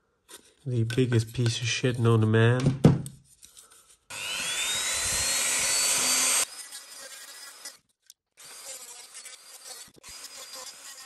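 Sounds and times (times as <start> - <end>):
rotary tool whining: 4.1 - 7.8, 8.4 - 11.0.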